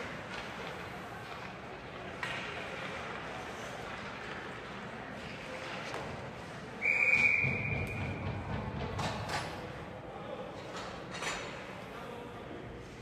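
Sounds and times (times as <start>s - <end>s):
arena noise: 0.0s - 13.0s
referee whistle blast: 6.8s - 7.8s.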